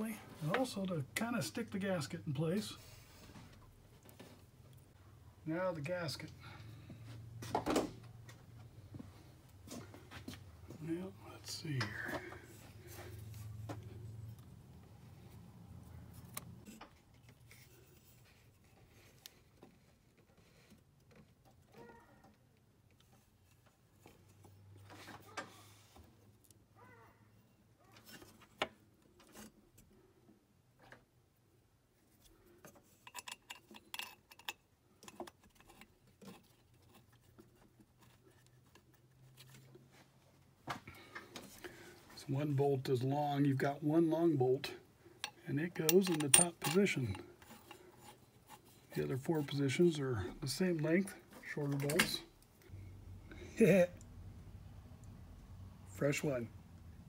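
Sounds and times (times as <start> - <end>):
metal parts clicking and rattling: 32.7 - 37.4, 45.2 - 48.8.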